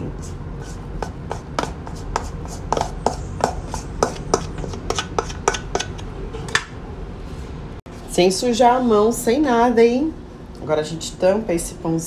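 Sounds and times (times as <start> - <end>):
metal utensil scraping steel bowl: 0.0 - 6.1.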